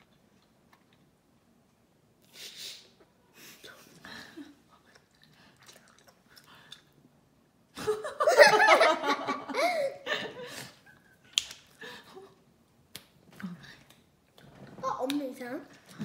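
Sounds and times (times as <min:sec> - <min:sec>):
girl laughing: 0:07.8 - 0:11.1.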